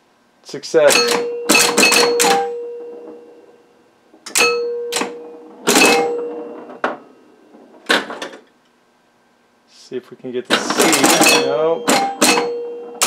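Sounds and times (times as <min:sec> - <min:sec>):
pinball machine clacks: 0:00.8 - 0:08.5, 0:10.5 - 0:13.0
scoring chimes ringing: 0:04.4 - 0:06.8, 0:11.0 - 0:13.0.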